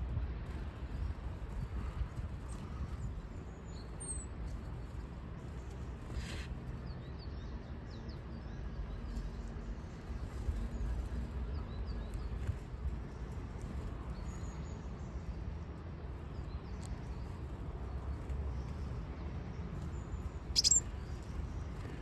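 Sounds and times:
faint high bird calls: 20.5 - 21.2.

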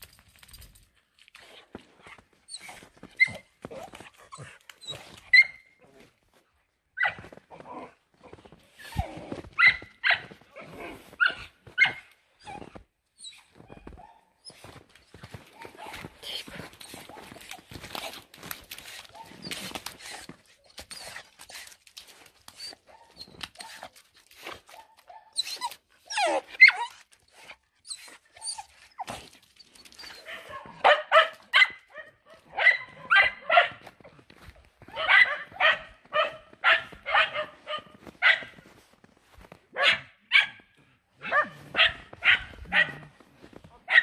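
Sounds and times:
dog barking: 9.6 - 10.3, 24.7 - 25.4, 30.2 - 33.9, 34.8 - 38.6, 39.7 - 43.1.

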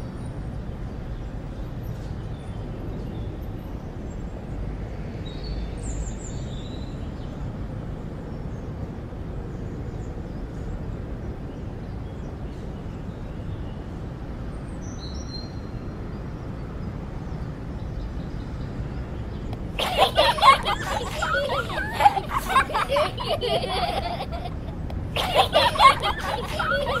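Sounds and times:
outdoor background rumble: 16.8 - 27.0.

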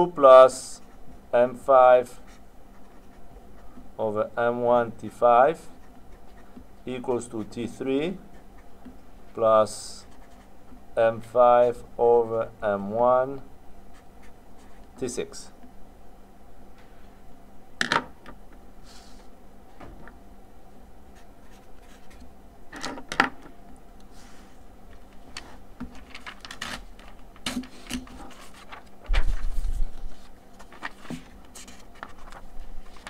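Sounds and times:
faint steady hum: 0.0 - 33.0
paper rustling: 25.0 - 33.0.

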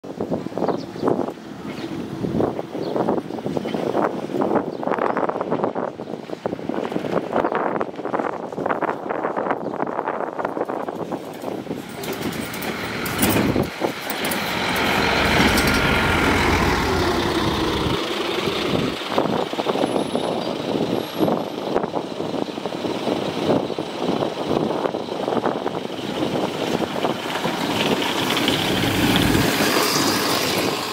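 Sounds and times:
bus approaching and passing: 0.0 - 30.9
bus engine pulling away: 11.6 - 30.9.

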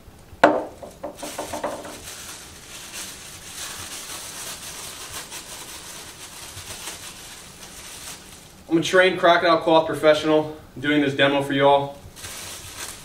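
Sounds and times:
plastic glove crinkling: 0.4 - 9.5, 11.9 - 13.0.

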